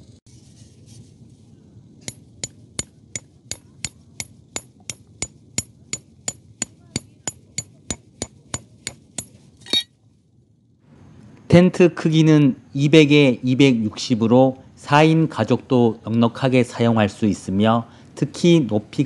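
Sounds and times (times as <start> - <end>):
hammer striking metal peg: 2.0 - 9.9.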